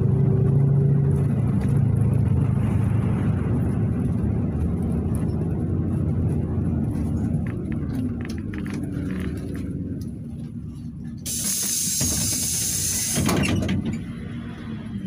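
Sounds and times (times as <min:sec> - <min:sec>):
bus engine rumble: 0:00.0 - 0:15.0
compressed air hiss: 0:11.2 - 0:13.4.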